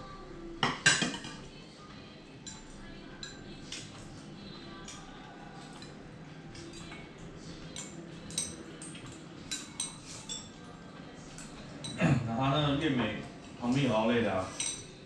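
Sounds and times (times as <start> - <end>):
utensils clinking on ceramic bowls: 2.4 - 3.9, 4.9 - 10.6, 11.4 - 12.0, 14.5 - 15.0.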